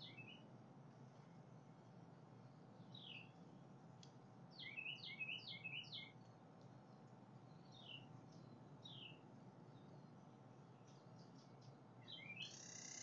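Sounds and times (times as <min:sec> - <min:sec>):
songbird whistling faintly: 0:00.0 - 0:00.4, 0:04.5 - 0:06.2, 0:10.9 - 0:13.0.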